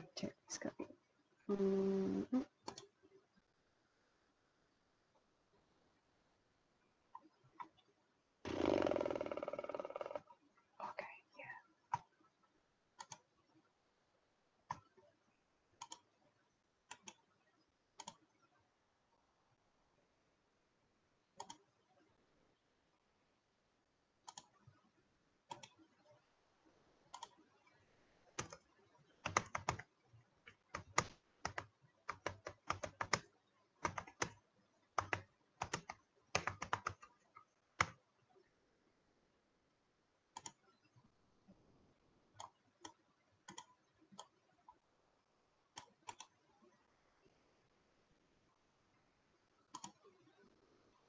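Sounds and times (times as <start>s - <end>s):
typing on computer keyboard: 2.6s - 2.9s, 13.0s - 13.3s, 15.8s - 16.1s, 16.9s - 17.2s, 18.0s - 18.3s, 24.2s - 24.6s, 25.5s - 25.9s, 27.1s - 27.4s, 28.4s - 29.9s, 30.5s - 38.0s, 40.3s - 40.7s, 42.4s - 44.4s, 49.7s - 50.1s.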